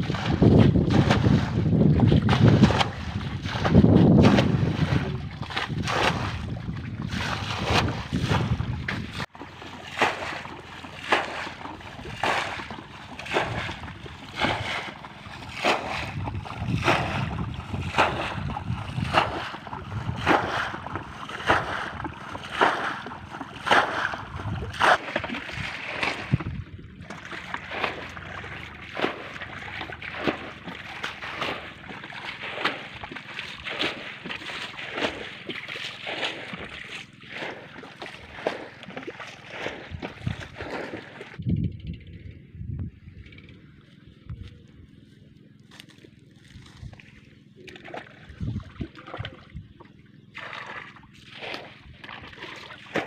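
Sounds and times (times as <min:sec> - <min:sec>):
wind on microphone: 0:00.0 - 0:09.3, 0:11.4 - 0:31.7, 0:39.5 - 0:44.8, 0:46.4 - 0:47.2, 0:48.1 - 0:49.8
water splashing from bowl: 0:00.0 - 0:41.4, 0:47.0 - 0:53.0.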